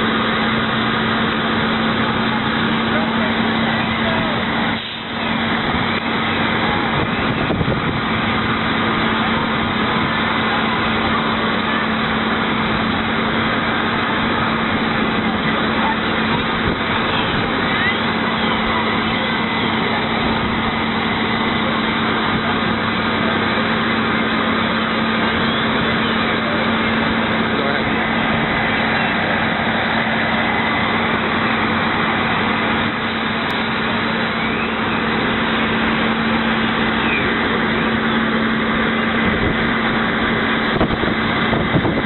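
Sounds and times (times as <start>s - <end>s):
fire engine pump humming: 0.0s - 42.0s
water rushing through hoses: 0.0s - 42.0s.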